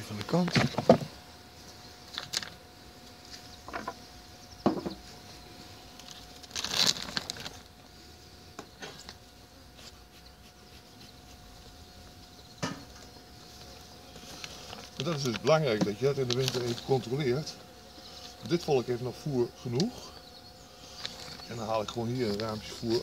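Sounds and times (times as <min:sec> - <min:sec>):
wooden hive parts knocking: 0:00.2 - 0:01.1, 0:04.6 - 0:05.0, 0:14.8 - 0:16.6
plastic foil rustling: 0:06.0 - 0:07.7, 0:14.2 - 0:15.6.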